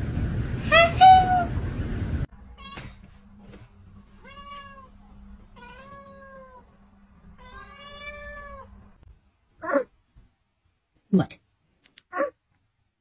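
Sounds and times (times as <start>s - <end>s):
cat meowing: 4.2s - 4.9s, 5.6s - 6.6s, 7.4s - 8.7s.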